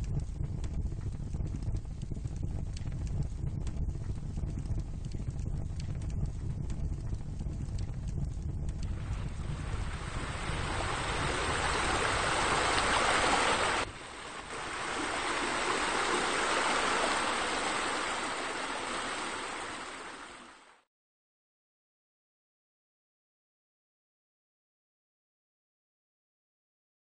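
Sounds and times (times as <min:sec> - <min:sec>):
rushing water: 0:08.8 - 0:20.8.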